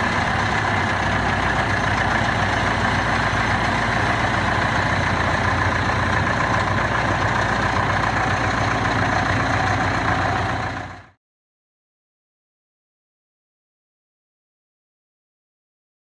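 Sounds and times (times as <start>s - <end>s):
diesel engine idling: 0.0s - 11.2s.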